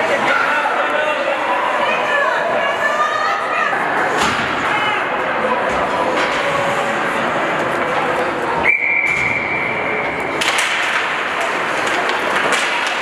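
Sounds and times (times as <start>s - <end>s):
crowd chatter in arena: 0.0s - 13.0s
skates and sticks on ice: 10.3s - 13.0s.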